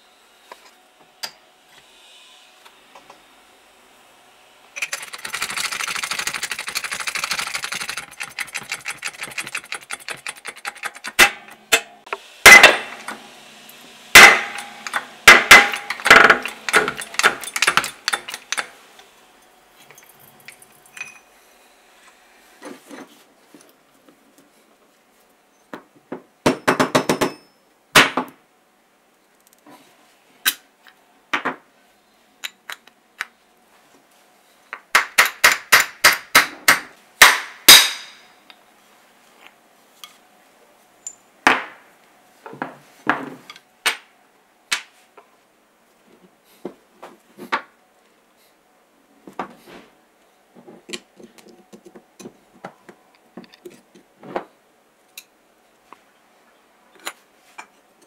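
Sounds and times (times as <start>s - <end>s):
rapid metal rattling: 4.8s - 11.3s.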